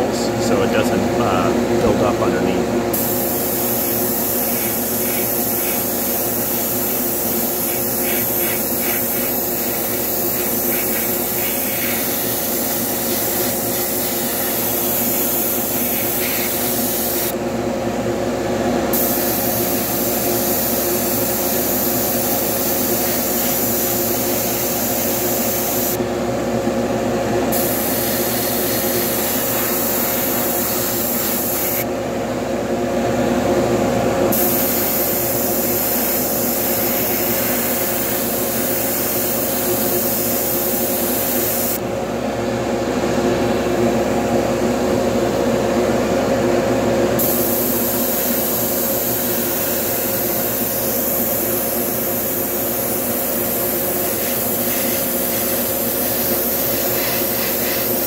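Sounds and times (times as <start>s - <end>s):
airbrush spraying hiss: 2.9s - 17.4s, 18.9s - 26.0s, 27.5s - 31.9s, 34.3s - 41.8s, 47.2s - 58.0s.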